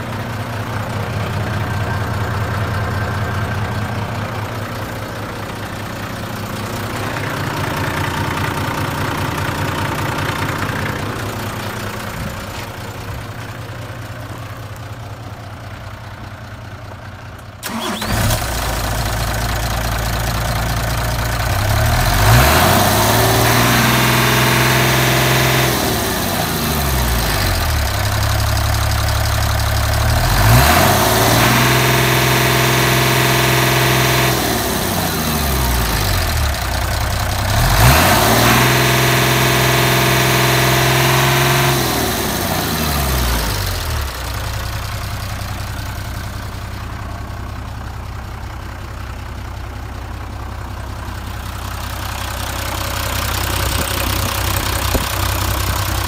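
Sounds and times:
diesel engine idling and revving: 0.0 - 56.0.

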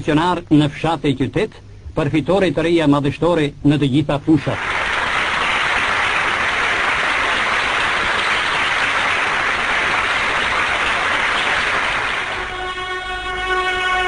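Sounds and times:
crowd applause: 4.4 - 14.0.

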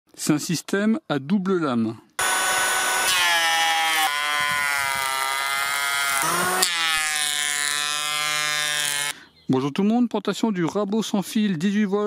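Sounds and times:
electric planer whining: 2.2 - 9.1.

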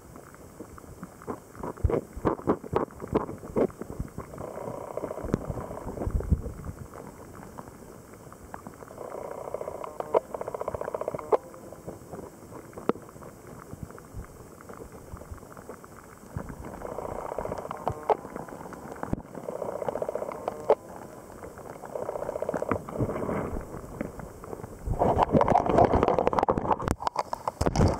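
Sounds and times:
small clicks and knocks: 25.2 - 27.9.

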